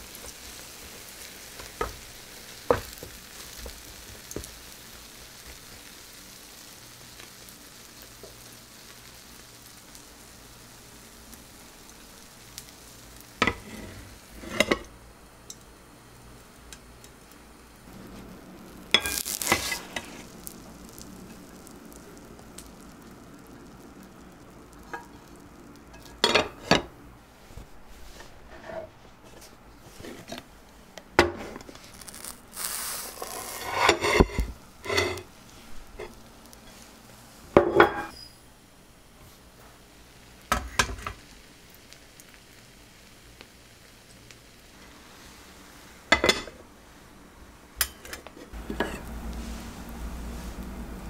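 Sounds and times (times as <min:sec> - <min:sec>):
oil sizzling: 0:00.0 - 0:51.0
pan and plate clattering: 0:13.4 - 0:14.9.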